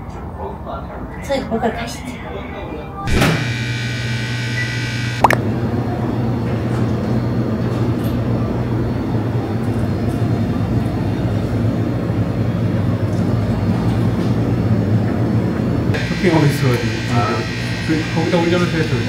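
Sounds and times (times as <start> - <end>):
bright ringing tone: 3.1 - 5.4, 16.0 - 19.0
refrigerated cases humming: 3.1 - 5.6, 15.9 - 19.0.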